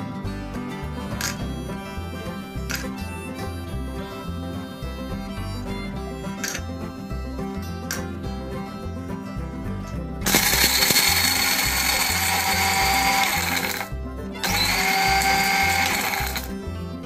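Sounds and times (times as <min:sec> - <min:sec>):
background music with beat: 0:00.0 - 0:17.0
electric blender grinding: 0:10.2 - 0:16.6.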